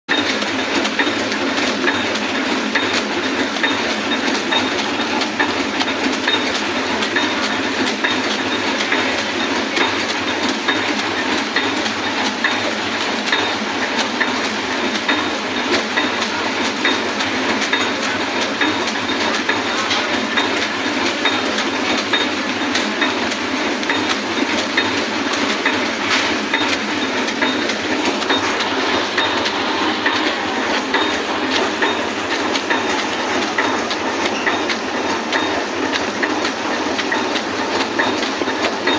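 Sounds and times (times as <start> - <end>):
packaging machine clattering: 0.2 - 38.9.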